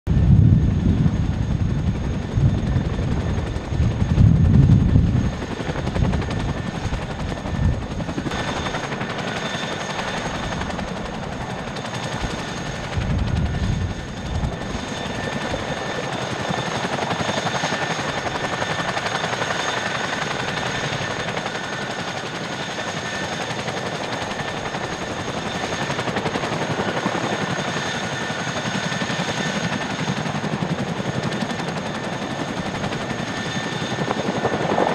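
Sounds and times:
low rumbling gusts: 0.1s - 9.1s, 10.1s - 17.0s
helicopter rotors chopping: 0.1s - 34.9s
high turbine whine: 0.1s - 34.9s.

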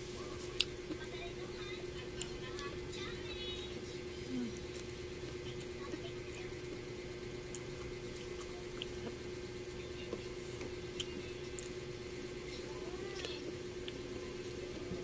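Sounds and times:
steady low hum: 0.0s - 15.0s
chewing: 7.5s - 9.2s.

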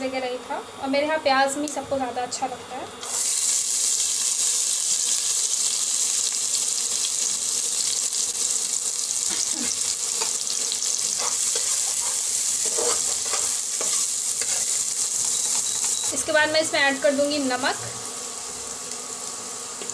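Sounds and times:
onion sizzling in oil: 1.6s - 19.9s
spatula scraping: 9.7s - 16.3s.

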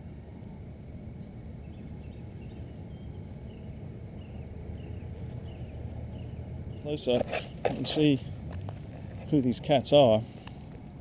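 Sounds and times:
steady low rumble: 0.0s - 11.0s
small bird chirping: 1.6s - 7.2s.

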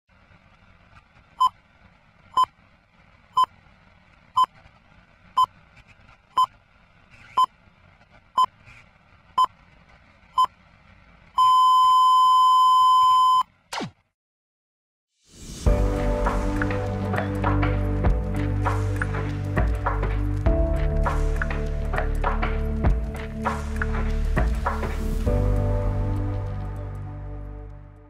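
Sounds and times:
long steady beep: 11.4s - 13.5s
short high beeps: 11.4s - 13.5s.

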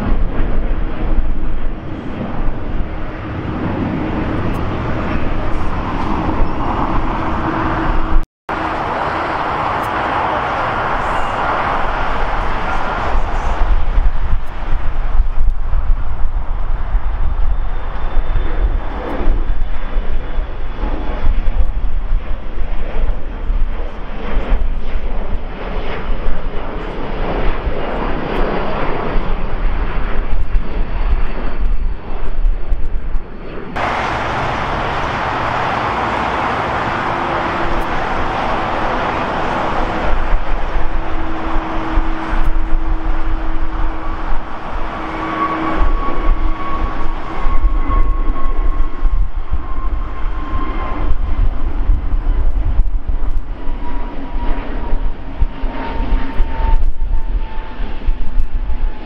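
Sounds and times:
jet engine roar on climb: 0.0s - 59.0s
jet engines rumbling while taxiing: 0.0s - 59.0s
steady hum: 33.8s - 50.2s.

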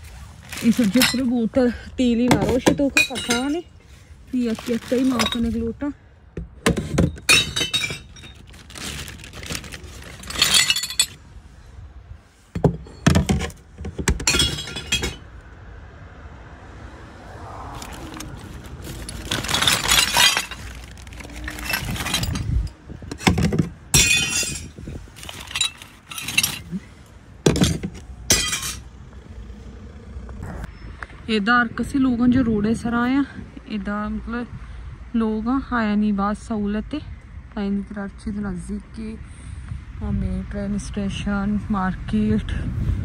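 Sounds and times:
glass bottles smashing: 0.5s - 1.3s, 2.4s - 3.6s, 5.0s - 5.6s, 6.8s - 11.2s, 14.2s - 15.3s, 18.8s - 26.8s, 27.5s - 28.8s.

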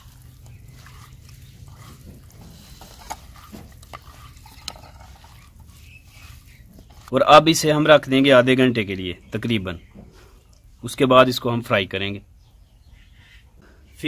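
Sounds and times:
hands mixing fish in bowl: 0.0s - 8.5s.

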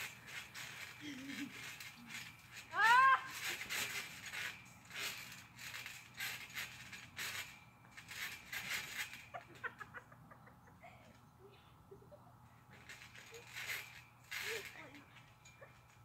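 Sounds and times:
trampoline springs creaking: 0.0s - 16.0s.

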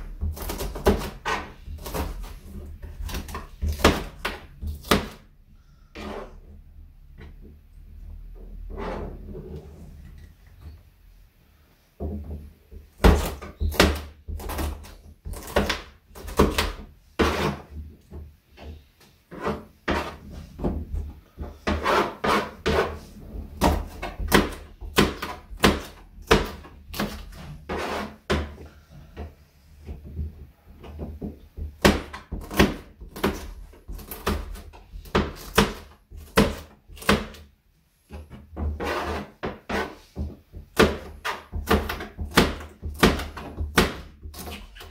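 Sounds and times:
knife chopping on cutting board: 0.0s - 5.3s, 13.0s - 17.6s, 19.4s - 20.8s, 23.6s - 28.6s, 31.6s - 37.4s, 40.7s - 44.9s.

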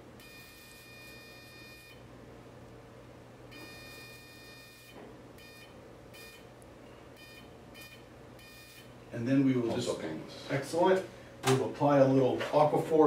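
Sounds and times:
electrocautery activation tone: 0.0s - 2.1s, 3.4s - 9.0s.

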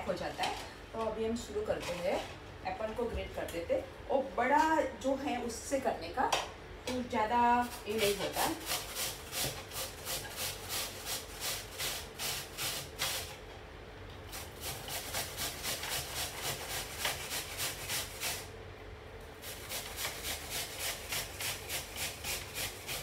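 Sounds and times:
apple rasping on metal grater: 7.6s - 13.3s, 14.3s - 18.5s, 19.4s - 23.0s.

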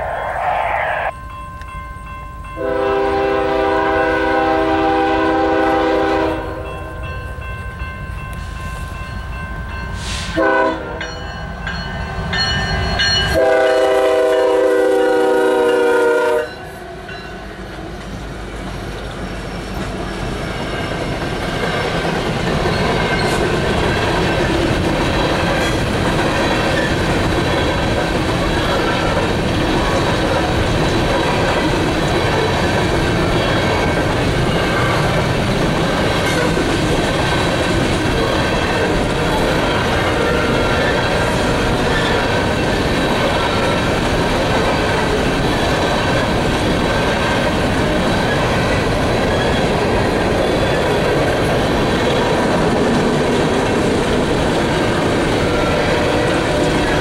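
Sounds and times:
train cars rolling past: 0.0s - 57.0s
locomotive horn blasts: 2.6s - 6.7s, 10.3s - 11.0s, 13.3s - 16.6s.

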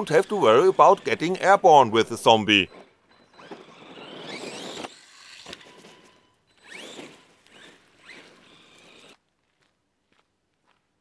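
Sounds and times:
electric motor whine: 0.0s - 1.4s, 3.3s - 9.2s.

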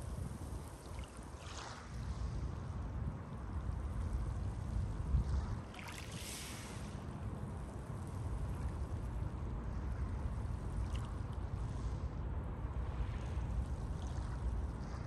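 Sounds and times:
steady low rumble: 2.0s - 15.0s
wave rushing up shore with hiss: 6.2s - 7.0s.

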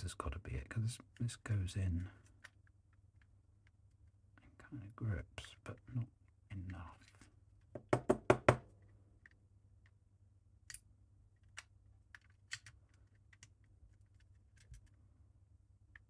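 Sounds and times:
plastic puzzle box knocking: 7.7s - 8.7s.

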